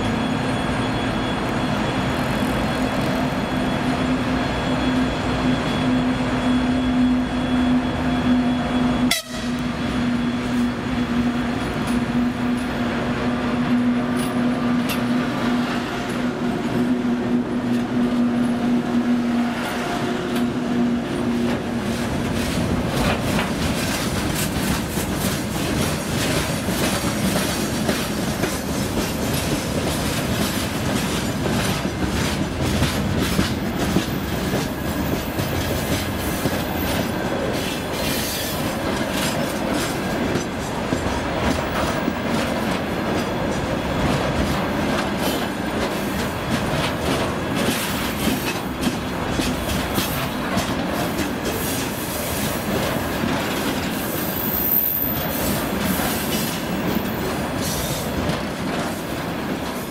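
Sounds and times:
train wheels rumbling on rails: 0:00.0 - 0:59.9
wheels clacking over rail joints: 0:19.5 - 0:59.9.

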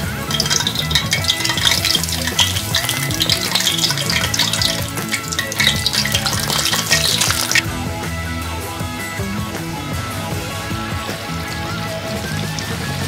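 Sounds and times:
oil bubbling and crackling: 0:00.0 - 0:07.7, 0:10.5 - 0:13.0.

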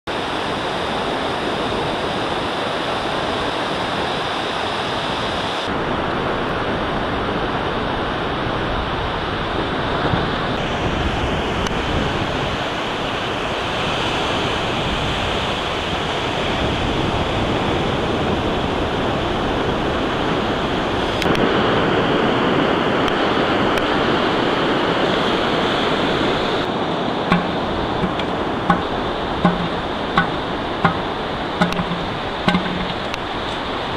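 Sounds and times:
surf breaking on beach: 0:00.1 - 0:33.9
sharp knocks: 0:27.3 - 0:33.2.

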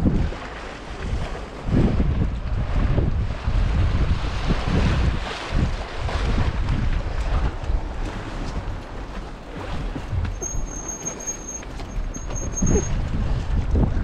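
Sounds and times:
wind rushing over microphone: 0:00.0 - 0:10.9, 0:11.7 - 0:14.0
high thin whistle: 0:10.3 - 0:13.0.

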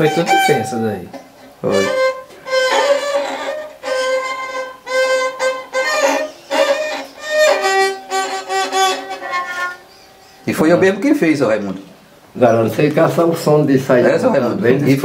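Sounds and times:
fiddle bowed in separate strokes: 0:00.0 - 0:11.0.

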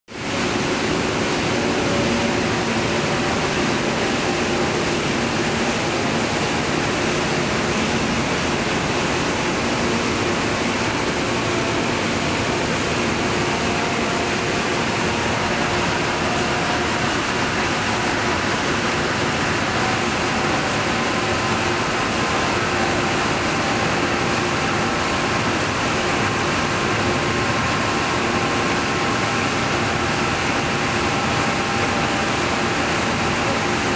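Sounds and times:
paper machine running: 0:00.8 - 0:33.9.

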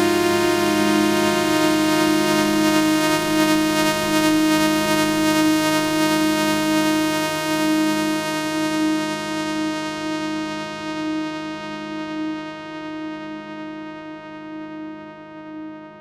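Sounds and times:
synthesizer pad chord: 0:00.0 - 0:16.0.

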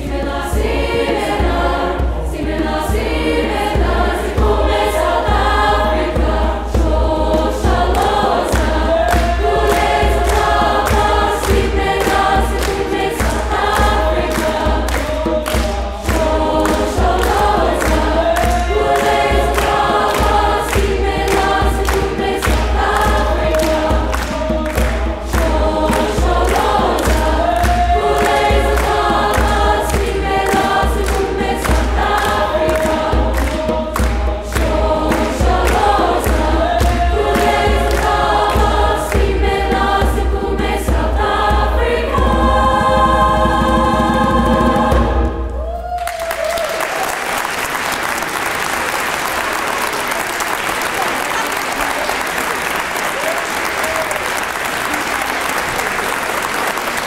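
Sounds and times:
choir singing: 0:00.0 - 0:46.3
audience applauding: 0:07.9 - 0:39.3, 0:45.5 - 0:57.0.

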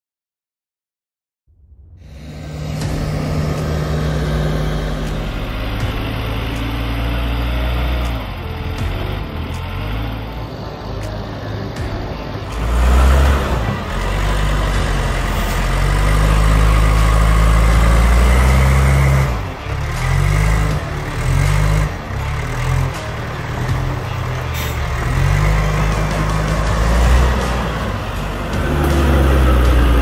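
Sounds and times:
diesel engine working under load: 0:02.0 - 0:30.0.

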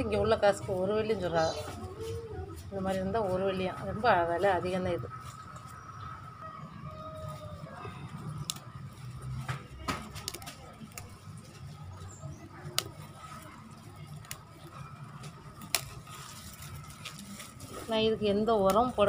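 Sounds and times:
leaves rustling: 0:00.0 - 0:19.0
stems snapping: 0:07.7 - 0:19.0.

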